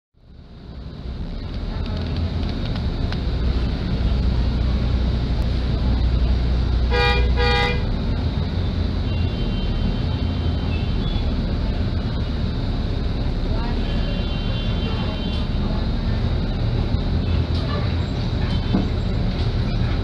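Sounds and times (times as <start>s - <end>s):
bus diesel engine rumbling: 0.2s - 20.0s
horn toots: 6.9s - 7.9s.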